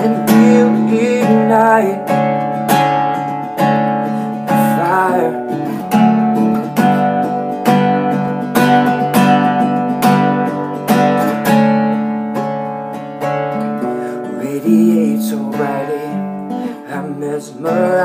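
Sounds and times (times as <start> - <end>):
acoustic guitar strumming chords: 0.0 - 18.0.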